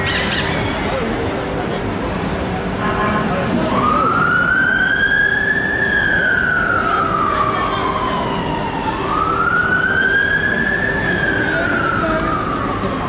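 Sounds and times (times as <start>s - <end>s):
low hum of traffic: 0.0s - 13.0s
fire engine siren wailing: 3.4s - 13.0s.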